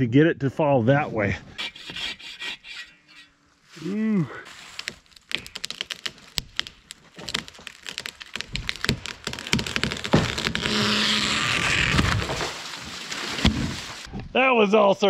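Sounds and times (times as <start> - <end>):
wood cracking and splintering: 4.4 - 14.2
falling tree rushing: 4.8 - 14.1.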